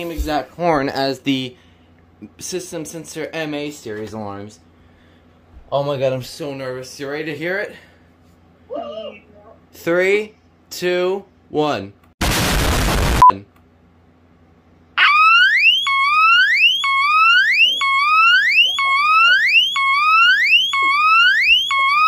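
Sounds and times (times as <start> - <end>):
explosion: 12.2 - 13.2
smoke alarm whooping: 15.0 - 22.0.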